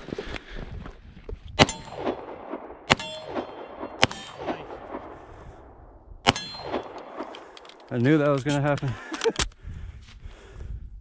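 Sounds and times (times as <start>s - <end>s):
metallic clang of steel targets: 1.6s - 2.2s, 2.9s - 4.6s, 6.3s - 8.8s
pistol shots: 1.6s - 5.2s, 6.3s - 7.5s.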